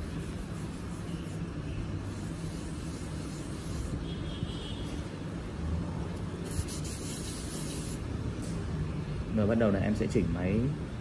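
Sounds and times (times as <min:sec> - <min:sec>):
tattoo machine humming: 0:00.0 - 0:04.2, 0:06.4 - 0:08.6.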